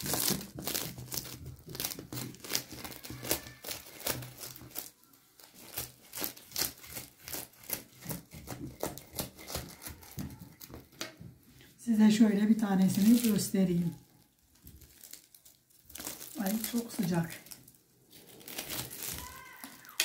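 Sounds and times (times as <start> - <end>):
knife cutting crisp crust: 0.0 - 10.8.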